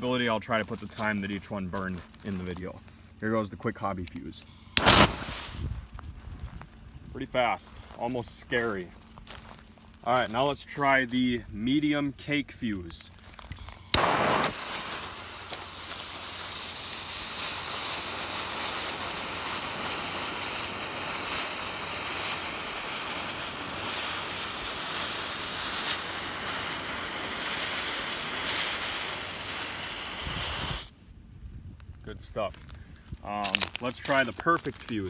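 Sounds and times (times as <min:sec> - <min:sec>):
faint crackles: 0:04.0 - 0:30.9, 0:31.7 - 0:35.0
fuse burning with hiss: 0:04.0 - 0:31.0, 0:31.8 - 0:35.0.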